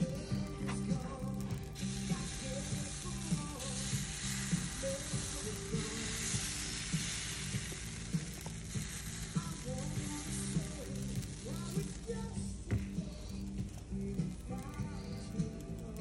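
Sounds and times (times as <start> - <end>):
background music with beat: 0.0 - 16.0
batter sizzling on skillet: 0.0 - 16.0.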